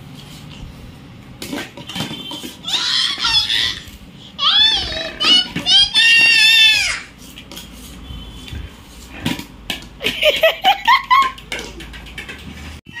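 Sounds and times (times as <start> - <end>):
child whining: 2.6 - 7.1
toddler crying: 2.6 - 7.1.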